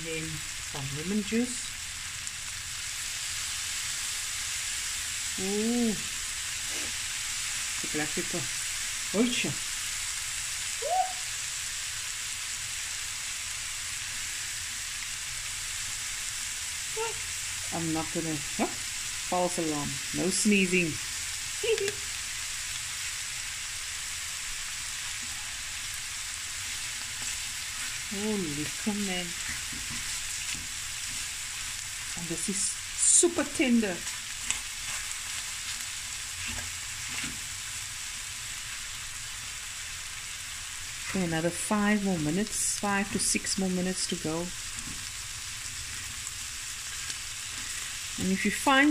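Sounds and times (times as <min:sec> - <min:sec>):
chicken sizzling in a pan: 0:00.0 - 0:48.9
person's rising vocal sound: 0:10.8 - 0:11.3
fork moving food in pan: 0:34.0 - 0:37.5.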